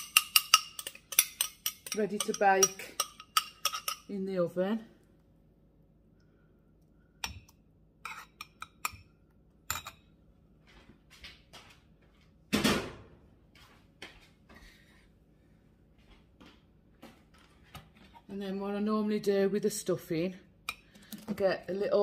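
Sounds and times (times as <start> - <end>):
spoon clinking on glass: 0.0 - 4.1.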